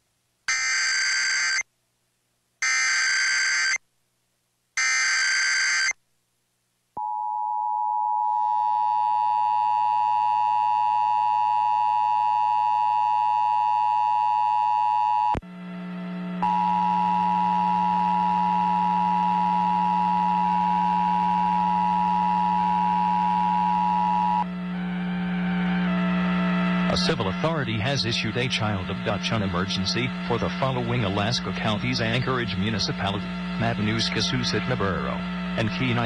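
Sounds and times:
low hum: 14.4 - 36.0.

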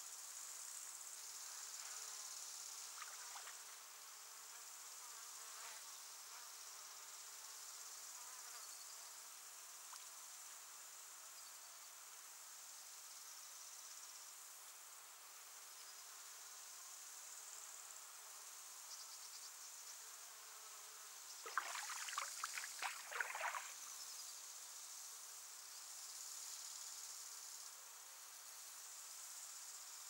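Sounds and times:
insect chorus trilling: 2.3 - 3.7, 21.3 - 25.0
faint ticks: 9.9 - 10.2.

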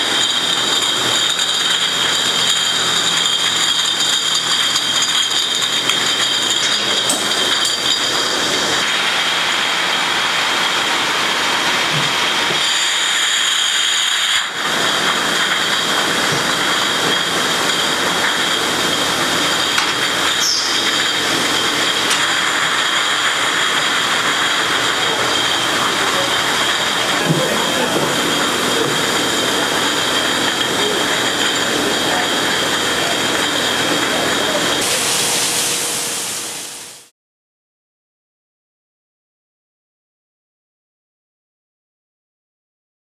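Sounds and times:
glass bottles clinking: 0.0 - 12.8, 14.4 - 35.2
factory machinery din: 0.0 - 37.1.

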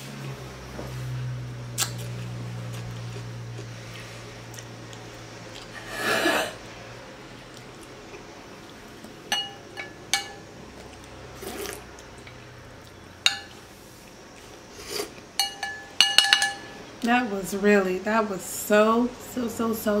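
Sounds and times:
soft eating sounds: 0.8 - 15.5
glass bowl clinking: 9.3 - 10.5, 13.3 - 13.6, 15.4 - 16.8.

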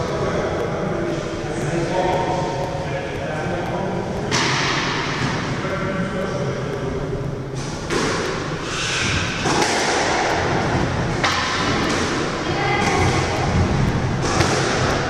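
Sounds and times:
racket striking squash ball: 4.3 - 5.5, 7.6 - 15.0.

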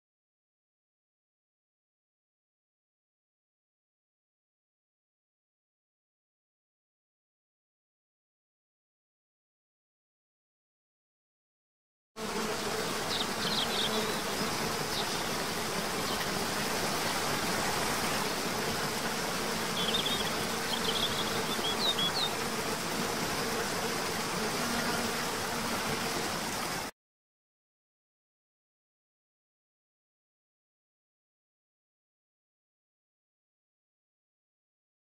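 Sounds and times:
water rushing: 14.4 - 26.9.

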